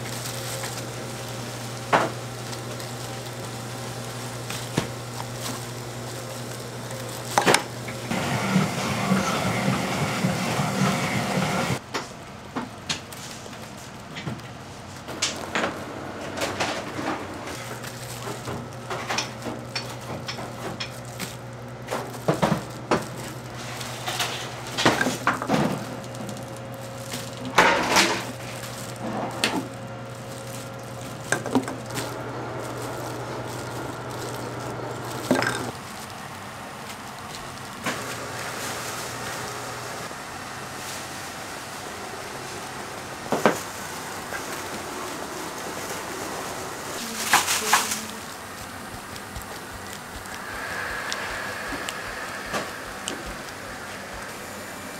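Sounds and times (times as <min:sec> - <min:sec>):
loud machine running: 0:00.0 - 0:11.8, 0:15.1 - 0:40.4, 0:41.6 - 0:54.9
utensils and dishes clattering: 0:00.0 - 0:11.8, 0:15.1 - 0:36.2, 0:47.0 - 0:54.9
low machine hum: 0:00.0 - 0:54.9.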